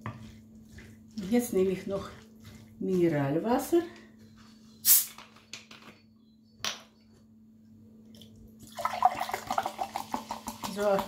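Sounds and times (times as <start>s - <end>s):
bottle opening hiss: 4.8s - 5.2s
water pouring into a glass: 8.6s - 10.8s.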